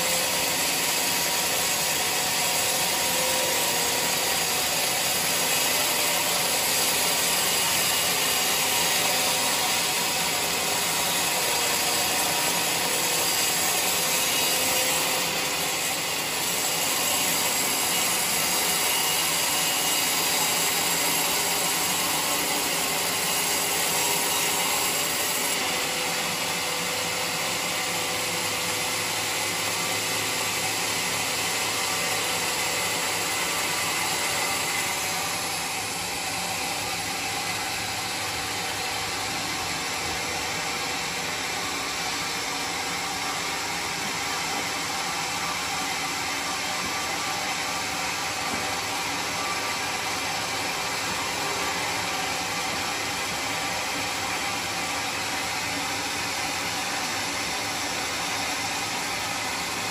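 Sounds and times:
band saw cutting log: 0.0s - 59.9s.

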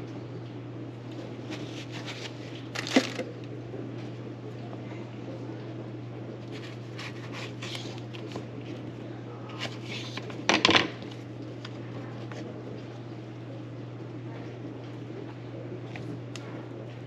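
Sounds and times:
knife and utensils scraping: 1.5s - 2.5s.

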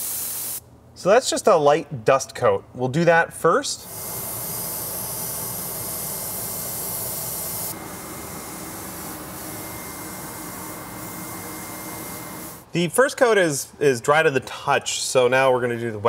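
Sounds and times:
airbrush spraying hiss: 0.0s - 0.6s, 3.8s - 12.6s
faint high whistle: 9.4s - 12.2s.

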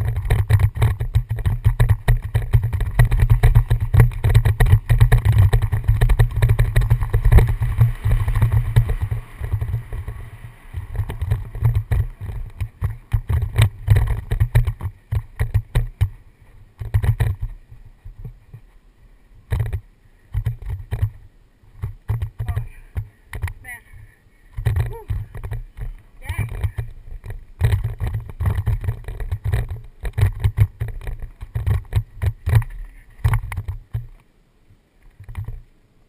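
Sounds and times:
bike rattling and knocking: 0.0s - 16.2s, 16.8s - 18.7s, 19.5s - 21.2s, 21.8s - 23.6s, 24.5s - 34.2s, 35.1s - 35.6s
wind buffeting microphone: 0.0s - 18.7s.

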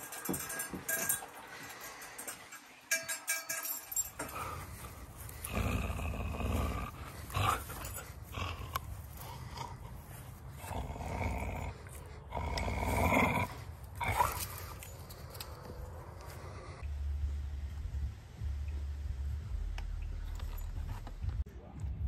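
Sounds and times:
dog growling: 4.2s - 16.8s.

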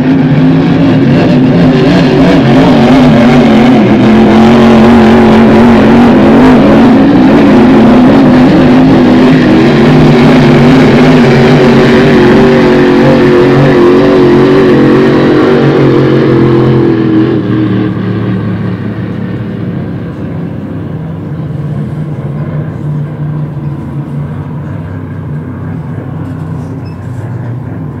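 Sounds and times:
racing boat engine passing: 0.0s - 28.0s.

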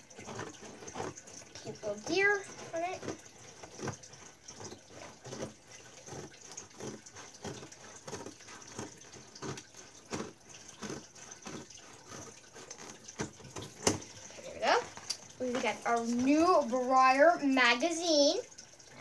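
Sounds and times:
scissors cutting cardboard: 0.0s - 14.1s.

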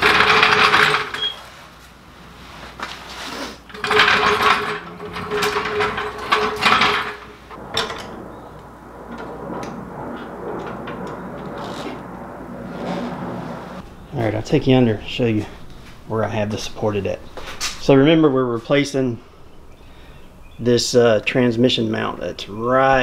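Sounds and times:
floor jack wheels rolling on concrete: 0.0s - 23.0s
metal clicks and knocks: 3.7s - 8.2s.

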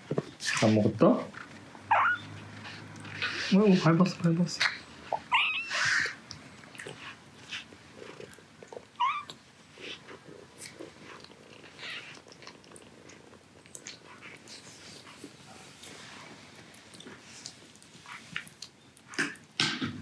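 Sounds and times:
kitten mewing: 1.9s - 2.3s, 5.1s - 6.2s, 9.0s - 9.4s
kitten eating wet food: 5.2s - 19.6s.

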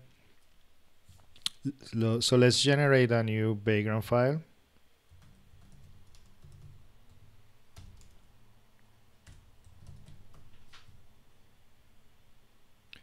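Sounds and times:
low steady hum: 0.0s - 13.0s
keystrokes on computer keyboard: 5.1s - 8.3s, 9.2s - 11.0s.

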